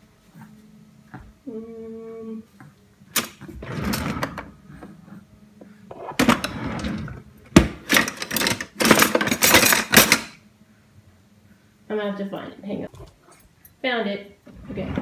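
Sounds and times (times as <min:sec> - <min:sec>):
drawers opening and shutting: 0:03.1 - 0:04.9, 0:05.9 - 0:10.4, 0:14.4 - 0:15.0
utensils rattling: 0:07.8 - 0:10.4.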